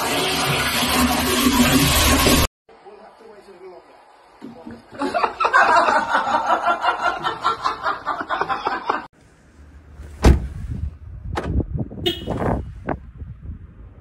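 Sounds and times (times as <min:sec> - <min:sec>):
car door clunking: 0:10.0 - 0:10.6.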